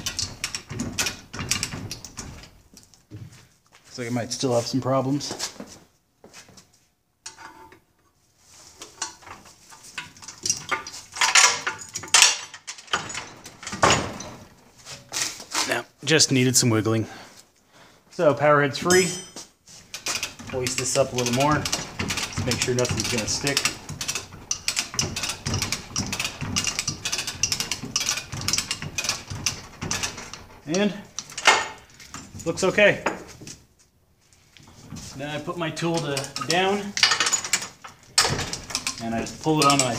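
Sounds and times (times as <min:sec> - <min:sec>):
metal clanking and rattling: 0:00.0 - 0:02.9, 0:08.8 - 0:15.8, 0:18.8 - 0:33.6, 0:34.6 - 0:39.9
chain hoist ratchet clicks: 0:19.9 - 0:31.6, 0:36.0 - 0:39.9.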